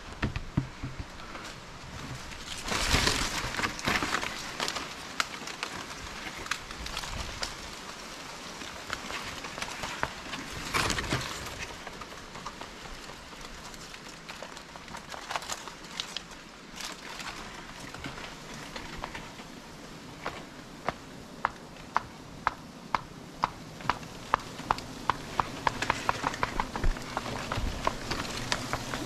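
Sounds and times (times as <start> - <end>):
leaves and twigs rustling: 0.0 - 29.0.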